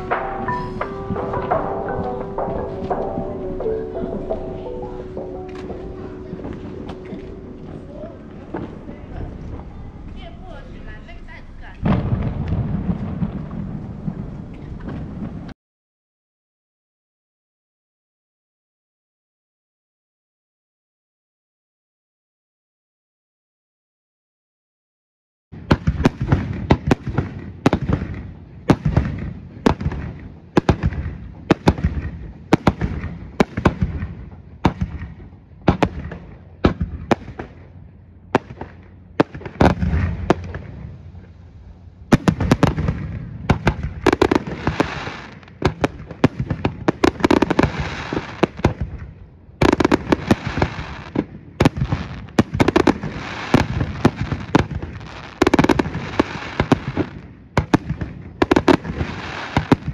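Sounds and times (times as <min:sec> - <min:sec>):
firework shell bursts booming: 0:00.0 - 0:03.7
fireworks crackling: 0:00.0 - 0:15.6, 0:25.6 - 0:59.9.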